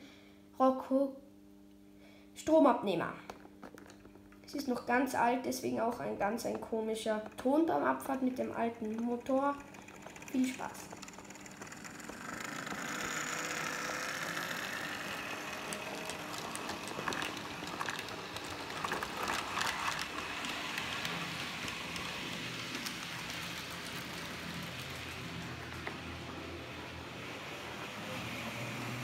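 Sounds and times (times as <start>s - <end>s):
faint rising whine: 5.6s - 29.0s
wheels clicking on model track: 5.9s - 29.0s
model locomotive motor whirring: 6.3s - 29.0s.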